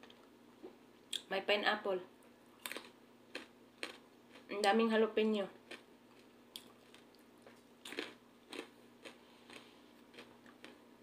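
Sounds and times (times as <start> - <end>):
faint chewing of pizza: 5.6 - 10.9.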